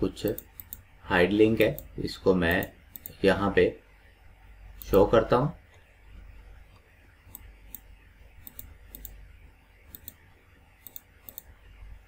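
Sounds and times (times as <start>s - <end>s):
low steady hum: 0.0s - 12.0s
computer mouse clicking: 0.2s - 0.9s, 2.5s - 3.2s, 4.8s - 5.0s, 6.7s - 9.2s, 9.9s - 10.2s, 10.8s - 11.6s.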